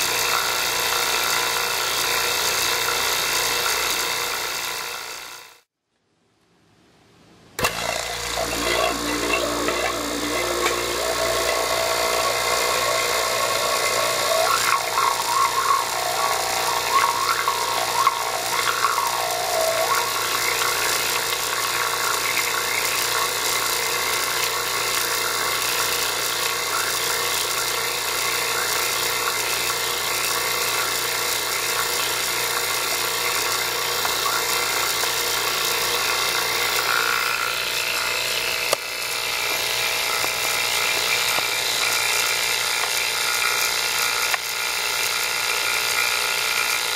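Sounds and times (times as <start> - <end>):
wavering electrical whine: 7.9 - 44.4
high-pitched electrical whirring hiss: 8.3 - 34.9.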